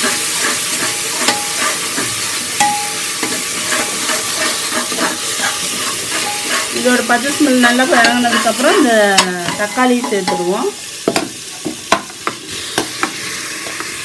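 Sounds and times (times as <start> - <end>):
metal spatula scraping pot: 0.0 - 10.7
food sizzling in oil: 0.0 - 14.0.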